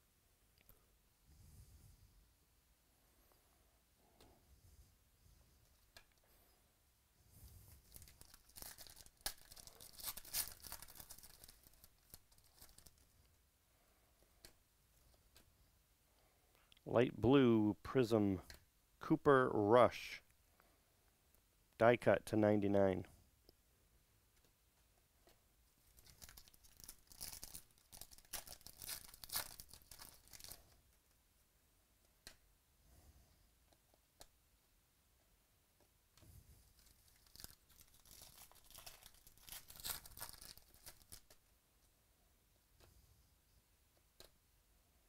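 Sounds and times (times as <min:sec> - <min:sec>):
foil wrapper tearing and crinkling: 0:07.8 - 0:13.0, 0:25.9 - 0:30.7, 0:36.8 - 0:41.4.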